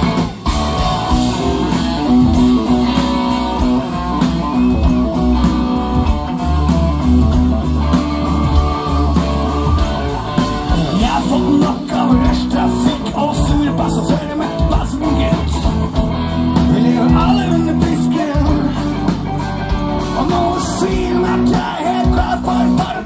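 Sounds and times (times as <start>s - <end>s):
rock band playing live: 0.0s - 23.0s
person singing: 8.3s - 15.9s, 16.6s - 19.2s, 20.0s - 23.0s.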